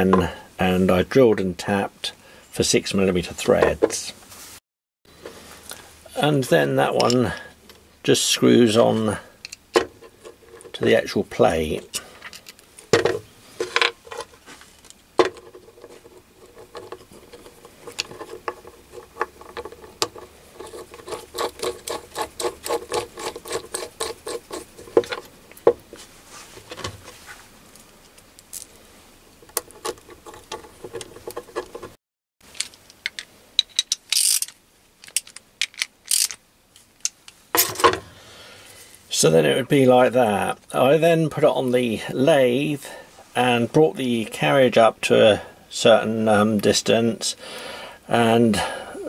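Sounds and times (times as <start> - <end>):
socket ratchet clicking: 33.0 - 36.4.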